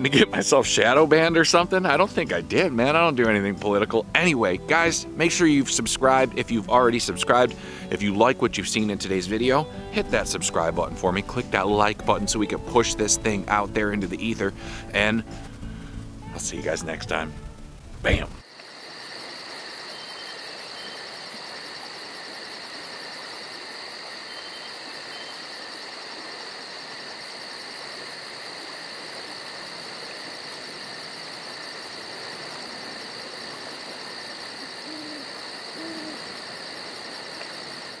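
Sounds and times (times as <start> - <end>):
frogs trilling: 18.4 - 38.0.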